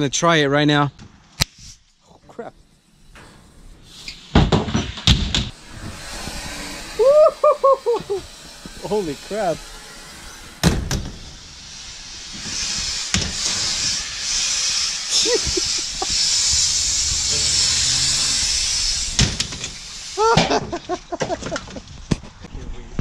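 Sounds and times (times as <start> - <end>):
smoke grenade hissing: 1.5 - 21.4
people shouting: 7.0 - 8.2.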